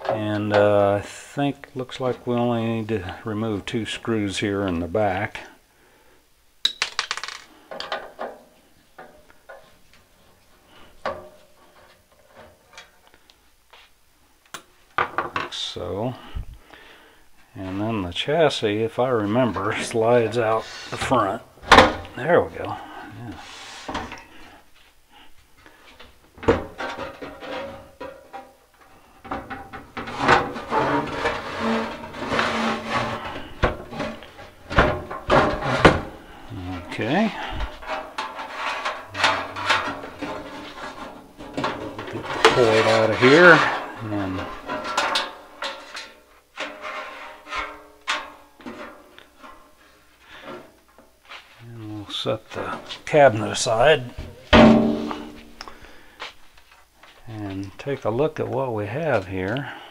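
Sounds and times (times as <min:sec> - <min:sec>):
metal-on-metal scrapes: 0:26.7 - 0:50.7, 0:54.5 - 0:55.6.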